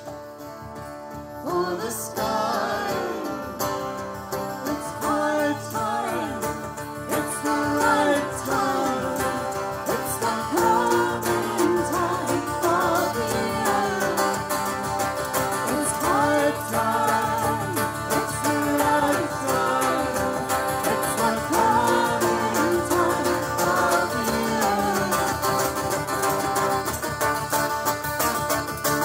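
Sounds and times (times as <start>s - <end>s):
plucked mandolin: 0.0s - 29.0s
strummed acoustic guitar: 0.0s - 29.0s
woman singing: 1.4s - 3.7s, 4.6s - 14.8s, 15.6s - 26.2s.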